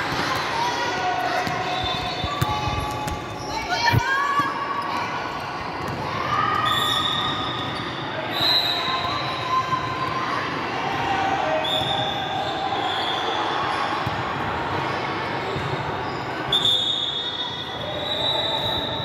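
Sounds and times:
sneakers squeaking on court: 1.4s - 4.9s, 15.4s - 16.7s.

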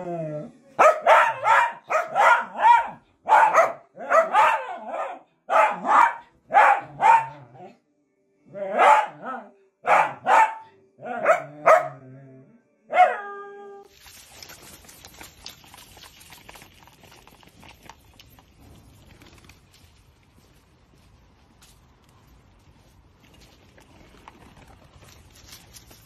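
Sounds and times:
dog barking: 0.8s - 7.6s, 8.7s - 12.0s, 12.9s - 13.3s
branch dragged over stone paving: 13.9s - 26.0s.

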